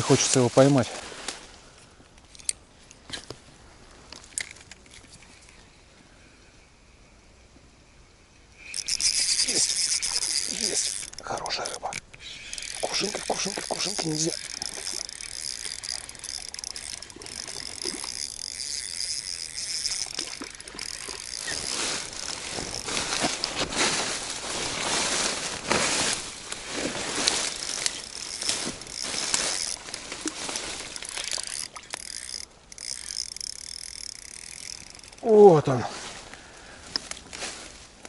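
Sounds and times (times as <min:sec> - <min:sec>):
spinning reel gears ticking: 0:08.5 - 0:23.4, 0:27.2 - 0:35.3.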